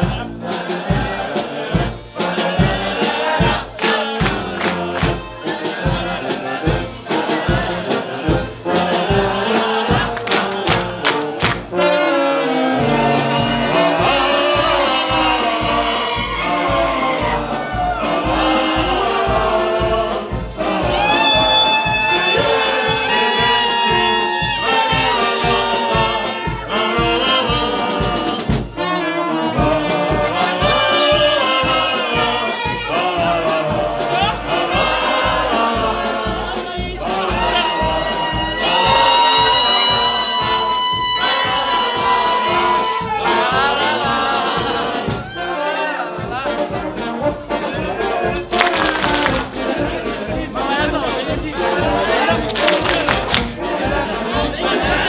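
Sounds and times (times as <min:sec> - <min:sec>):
snare and bass drum beat: 0:00.0 - 0:12.0, 0:12.8 - 0:28.8, 0:29.6 - 0:45.3, 0:46.2 - 0:55.0
trumpets and brass horns: 0:00.0 - 0:55.0.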